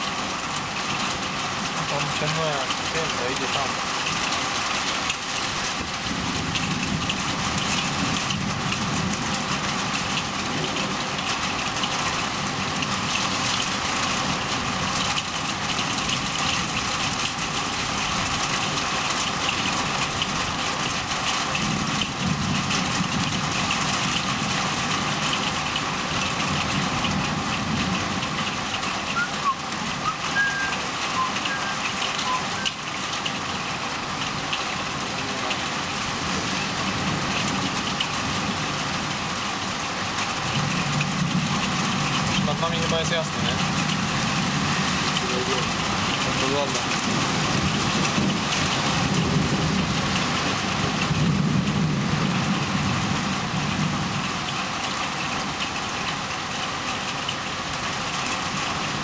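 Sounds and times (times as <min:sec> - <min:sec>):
heavy rain pouring: 0:00.0 - 0:59.0
low thunder rumbling: 0:43.3 - 0:54.3.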